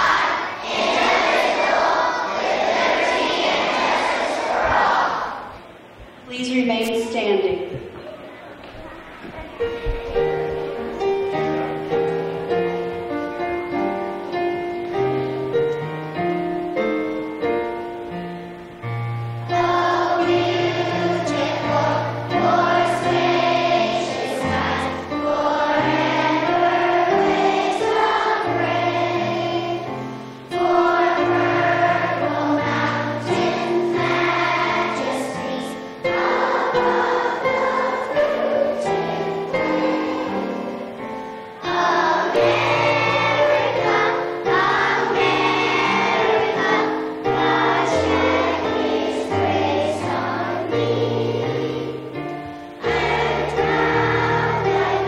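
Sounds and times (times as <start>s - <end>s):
children singing together: 0.0s - 5.9s, 19.4s - 55.0s.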